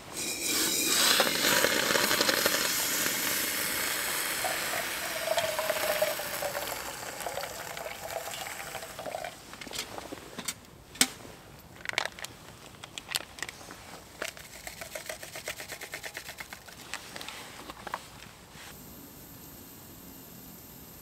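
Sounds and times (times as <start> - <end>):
hot water pouring into mug: 0.1 - 9.4
spoon stirring in metal mug: 0.2 - 9.3, 14.3 - 16.6.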